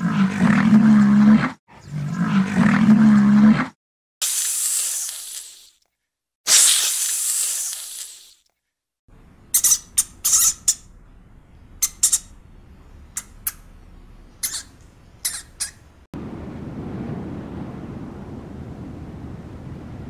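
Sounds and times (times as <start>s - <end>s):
snake hissing: 4.2s - 5.8s, 6.5s - 8.4s
faint low hum: 10.8s - 20.0s.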